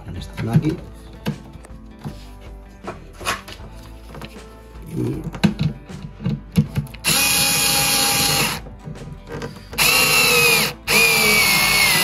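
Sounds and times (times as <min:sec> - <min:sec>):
drill motor whine: 0:07.0 - 0:08.6, 0:09.8 - 0:12.0.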